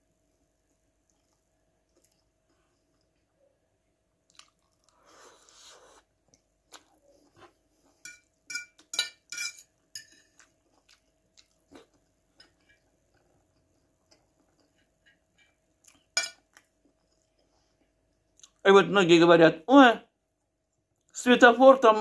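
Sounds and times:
wet chewing and mouth clicks: 0:00.7 - 0:03.1, 0:04.2 - 0:05.7, 0:06.3 - 0:07.6, 0:10.2 - 0:18.6
fork clinking on plate: 0:08.0 - 0:10.4, 0:16.2 - 0:16.5.

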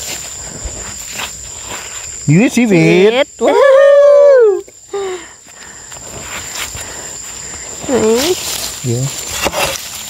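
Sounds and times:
hand digging in dry soil and leaves: 0:07.7 - 0:10.0.

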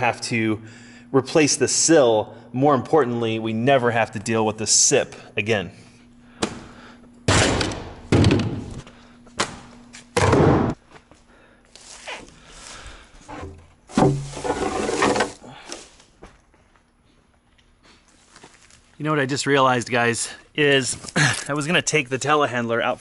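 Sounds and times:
wooden plank thudding: 0:13.9 - 0:14.5.

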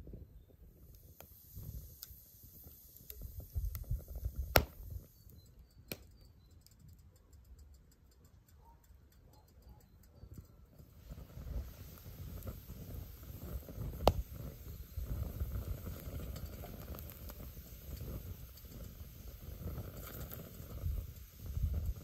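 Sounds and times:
wood fire crackling and popping: 0:00.0 - 0:08.6, 0:09.3 - 0:22.0.

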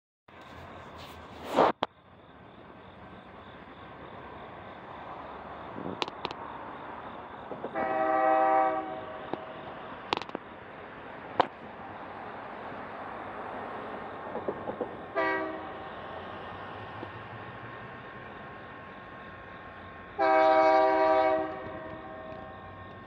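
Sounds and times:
diesel train engine rumble: 0:00.3 - 0:23.0
sharp clicks: 0:05.9 - 0:06.4, 0:10.1 - 0:10.4
train air horn blast: 0:07.7 - 0:09.6, 0:15.1 - 0:15.9, 0:20.2 - 0:22.8.

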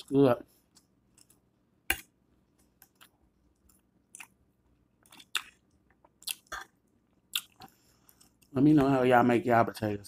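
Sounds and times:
person chewing food: 0:00.0 - 0:08.6
mouth clicks and smacks: 0:05.0 - 0:08.5.

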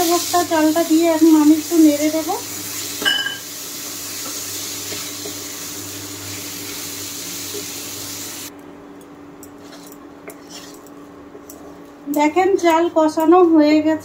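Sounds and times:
rice sizzling in a pan: 0:00.0 - 0:08.5
spatula scraping and clicking: 0:09.4 - 0:13.4.

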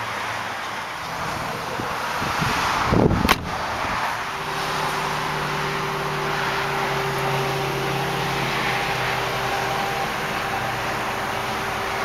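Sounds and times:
low hum with rushing noise: 0:01.1 - 0:12.0
car trunk lid thudding shut: 0:03.0 - 0:03.6.

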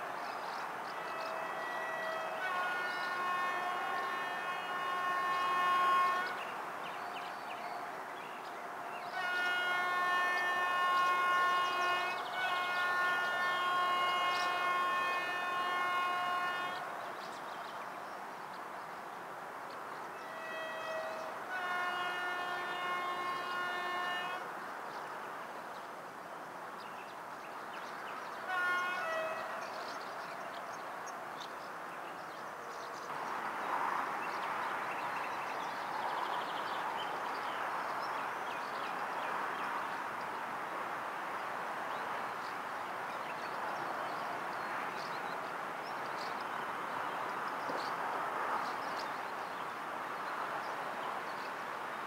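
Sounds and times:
train horn blasts: 0:00.4 - 0:17.4, 0:20.1 - 0:24.5, 0:27.8 - 0:31.2.

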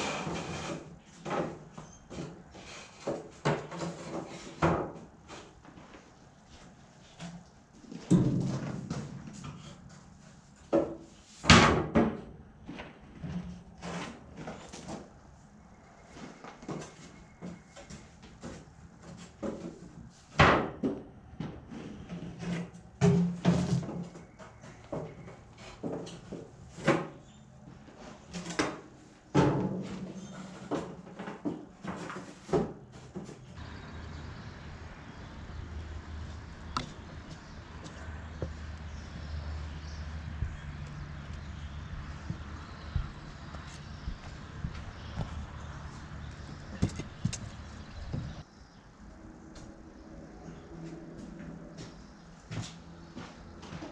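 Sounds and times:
objects clattering on wooden shelf: 0:00.0 - 0:05.4, 0:16.6 - 0:27.2
low outdoor rumble: 0:33.6 - 0:53.9.

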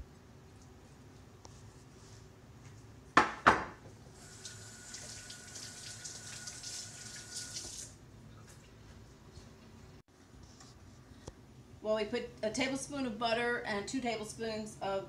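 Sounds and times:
kitchen tap running: 0:04.1 - 0:08.0.

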